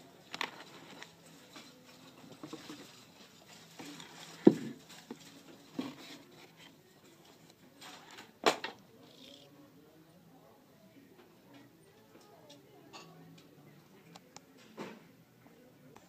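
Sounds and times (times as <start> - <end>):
paper rustling: 0.3 - 8.3.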